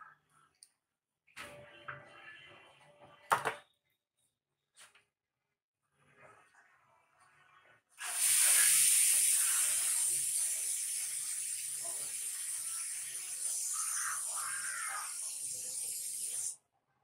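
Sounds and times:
high-pitched hiss: 8.0s - 16.5s.

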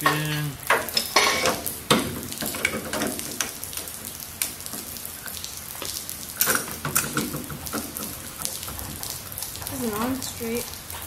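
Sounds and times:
light clicking and rustling of bolts: 0.0s - 4.9s.

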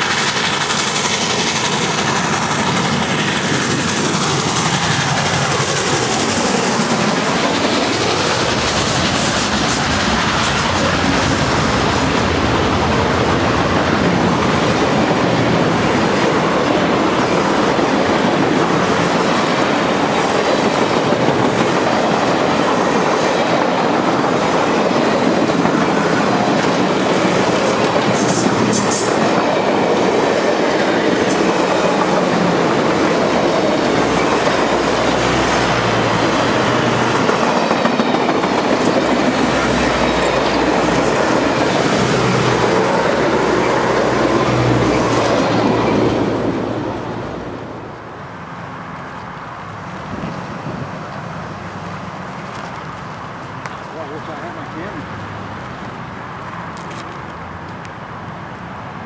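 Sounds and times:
train wheels rolling on rails: 0.0s - 59.0s.

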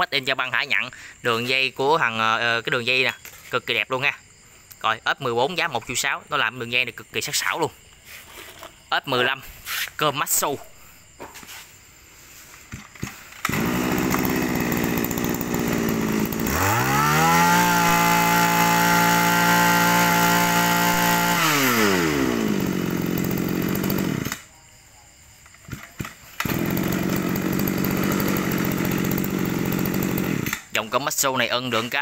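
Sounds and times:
brush cutter engine revving: 12.5s - 24.5s, 25.5s - 32.0s
recoil starter pull: 12.6s - 24.5s, 25.5s - 30.8s.

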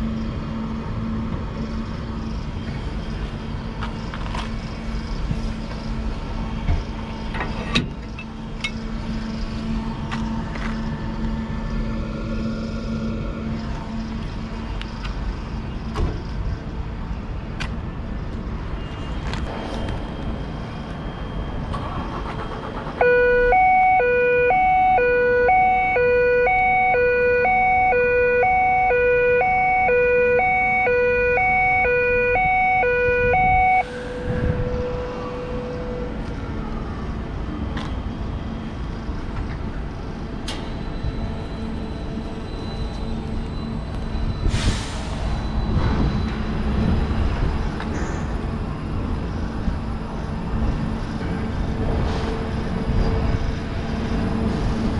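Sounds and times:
engine hum: 0.0s - 54.9s
two-tone electronic warning alarm: 22.9s - 36.4s.

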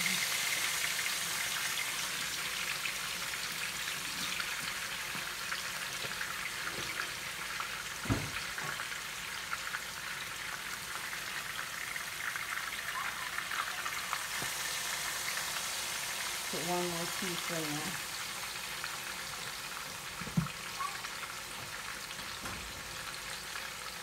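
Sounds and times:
chicken sizzling in hot oil: 0.0s - 24.0s
knock: 8.0s - 8.4s, 20.2s - 20.6s.

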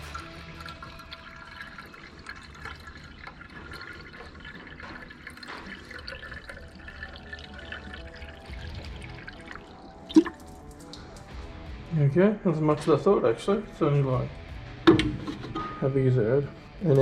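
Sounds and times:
water pouring from jug: 0.0s - 11.5s.

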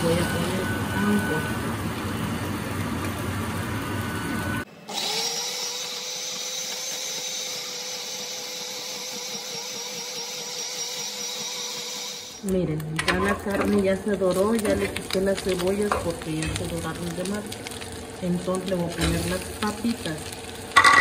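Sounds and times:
blender motor grinding: 4.7s - 12.4s.

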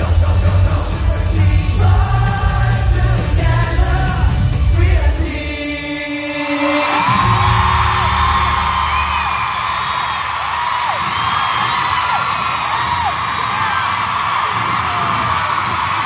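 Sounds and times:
live pop song over heavy beat: 0.0s - 9.7s
audience screaming and whooping: 6.5s - 16.0s.

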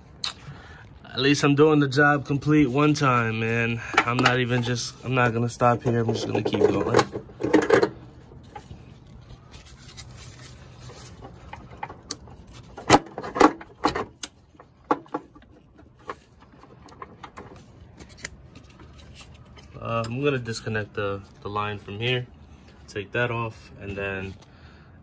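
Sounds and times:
tools clicking and knocking: 6.2s - 8.6s, 11.2s - 18.4s.

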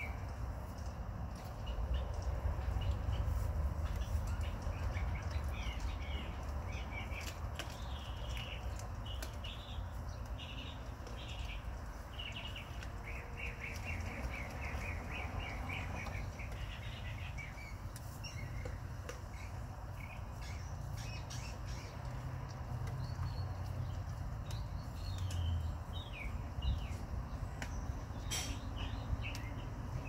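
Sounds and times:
small birds chirping: 0.0s - 30.0s.

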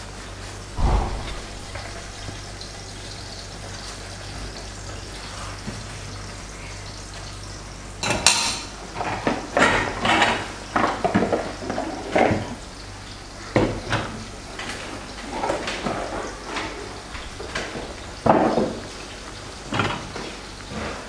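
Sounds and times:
tableware clinking and knocking: 8.0s - 8.7s.

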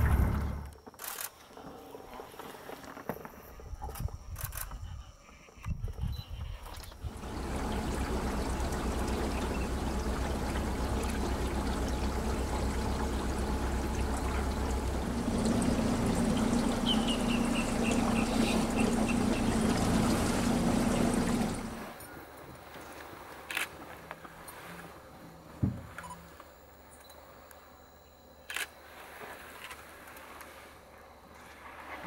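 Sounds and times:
boat motor hum: 0.0s - 0.7s, 7.0s - 22.3s
water rushing along boat hull: 7.0s - 25.6s
high chirps: 7.1s - 21.7s.

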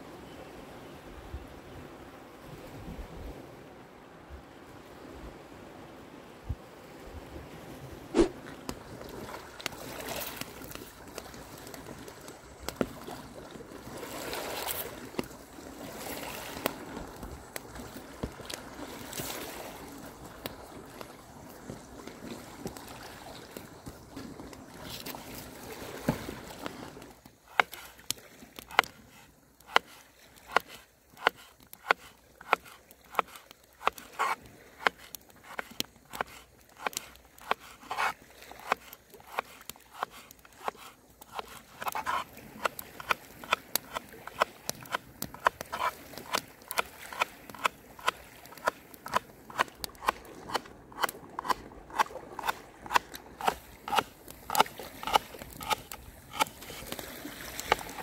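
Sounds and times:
knife chopping on wood: 8.2s - 8.4s, 28.7s - 28.9s, 29.7s - 44.5s, 45.3s - 56.8s.

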